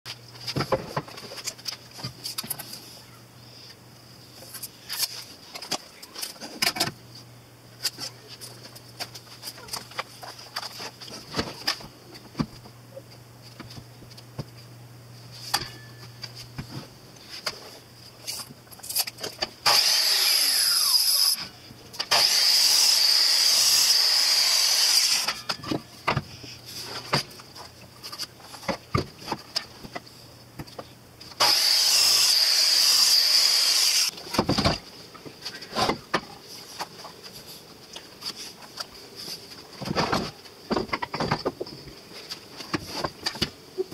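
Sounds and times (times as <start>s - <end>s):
miter saw cutting wood: 19.6s - 25.5s, 31.4s - 34.1s.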